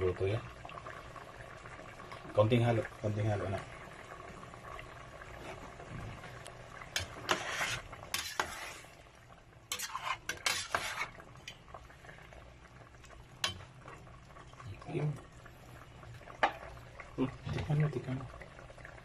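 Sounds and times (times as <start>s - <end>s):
ladle scraping a metal pot: 6.9s - 9.0s, 9.7s - 11.2s.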